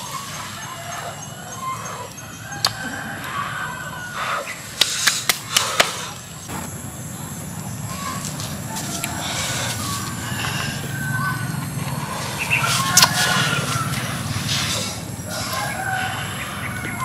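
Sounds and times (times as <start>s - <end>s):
faint steady high whine: 0.0s - 17.0s
chickens clucking: 7.8s - 17.0s.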